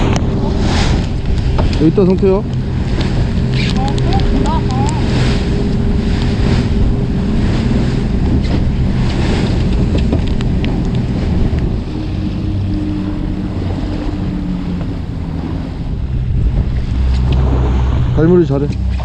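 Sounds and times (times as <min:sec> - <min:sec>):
boat engine running: 0:00.0 - 0:19.0
water rushing past hull: 0:00.0 - 0:19.0
wind buffeting microphone: 0:00.0 - 0:19.0.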